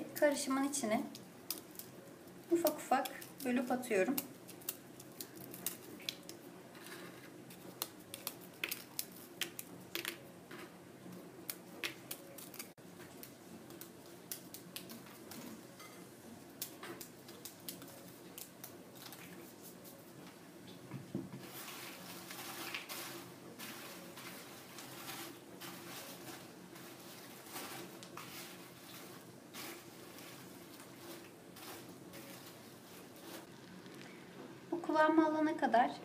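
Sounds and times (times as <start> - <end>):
spatula stirring wet mixture: 0.1 - 20.1, 21.4 - 34.7
biscuits snapping by hand: 1.1 - 15.6, 16.5 - 20.0.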